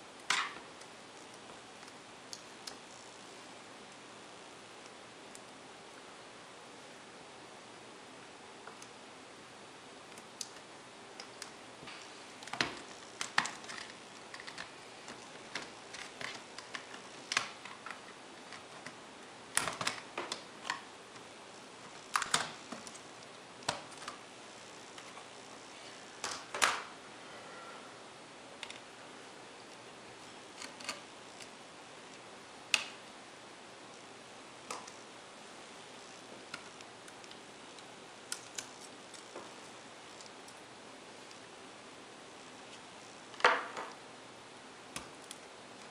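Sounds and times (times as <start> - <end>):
plastic parts clicking and snapping: 11.2 - 21.2, 21.8 - 24.2, 30.5 - 31.5.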